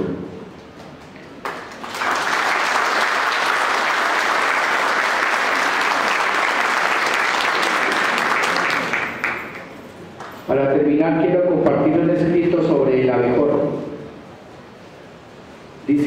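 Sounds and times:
audience applauding: 1.4 - 10.4.

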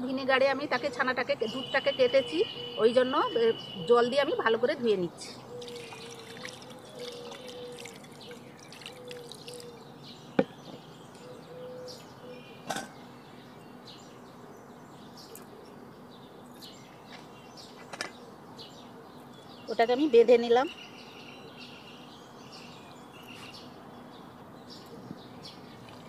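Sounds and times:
outdoor background noise: 0.0 - 26.0
water trickling into strainer: 5.6 - 9.9.

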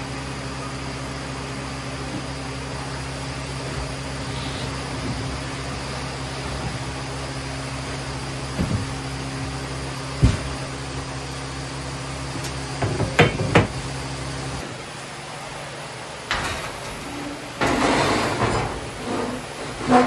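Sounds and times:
steady mechanical hum: 0.0 - 20.0
knocks and clatters of boards: 8.5 - 9.6, 10.2 - 10.7, 12.8 - 13.8.

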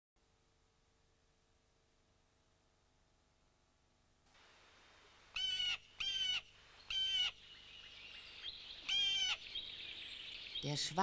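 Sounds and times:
bird of prey calling: 5.3 - 11.0.

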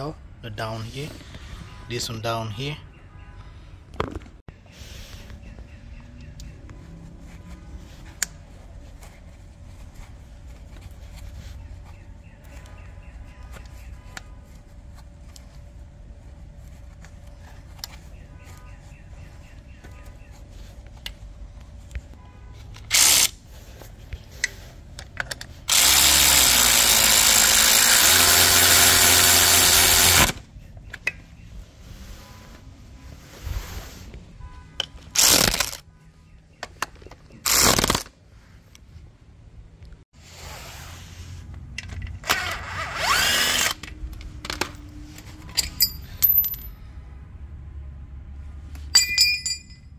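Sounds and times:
power tool driving bolts: 22.8 - 23.4, 25.7 - 30.4, 35.2 - 35.8, 37.4 - 38.1, 42.2 - 44.0.

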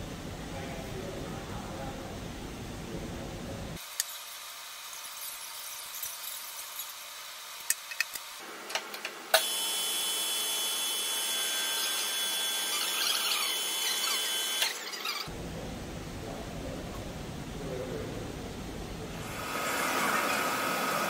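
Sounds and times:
lathe high-pitched whine: 9.3 - 15.3.

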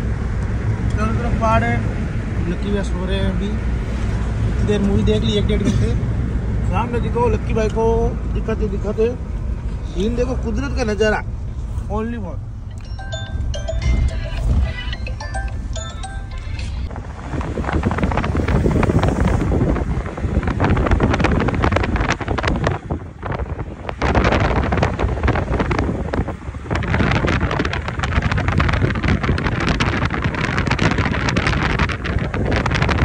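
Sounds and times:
road noise: 0.0 - 33.0
wind buffeting microphone: 16.8 - 33.0.

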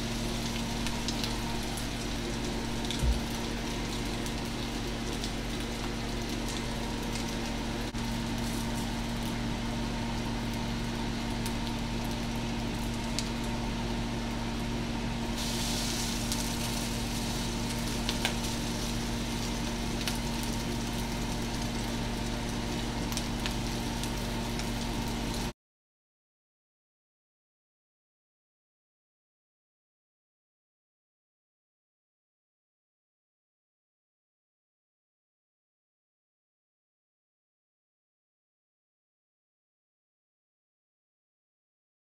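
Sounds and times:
constant low hum: 0.0 - 25.5
rice cakes sizzling in a pan: 0.0 - 25.6.

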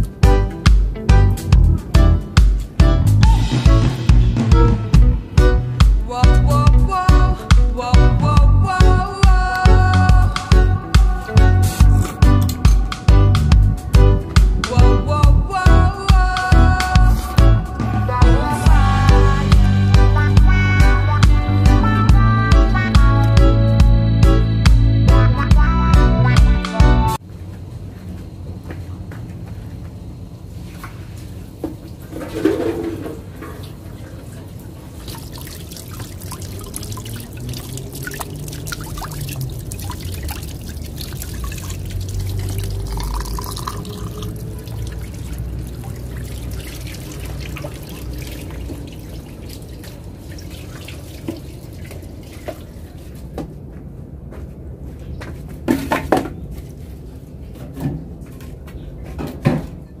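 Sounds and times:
tap water splashing into basin: 34.9 - 53.5.

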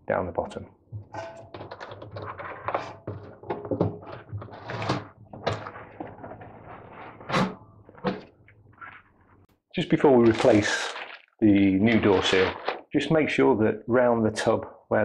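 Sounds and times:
rubber seal rubbing and scraping: 1.1 - 9.4.

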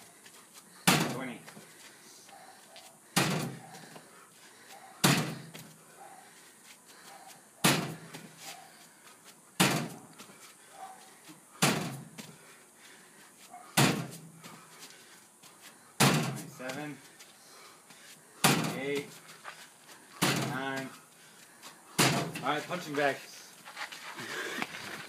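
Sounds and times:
feet thudding on box: 0.8 - 1.6, 3.2 - 4.1, 4.8 - 5.8, 7.2 - 8.6, 9.6 - 12.5, 13.5 - 15.0, 16.0 - 17.0, 17.9 - 19.6, 20.2 - 21.0, 21.9 - 22.4.

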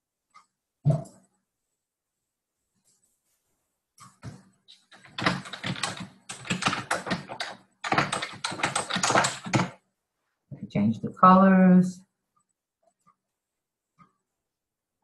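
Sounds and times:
computer keyboard typing: 4.9 - 9.8.

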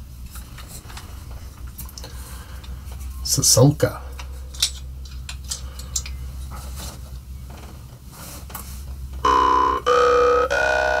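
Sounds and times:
jaw harp buzzing drone: 9.2 - 11.0.

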